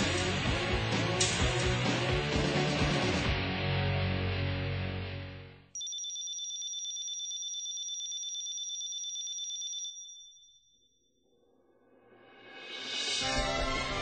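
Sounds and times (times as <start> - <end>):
high electronic ringing trill: 5.8 - 11.1.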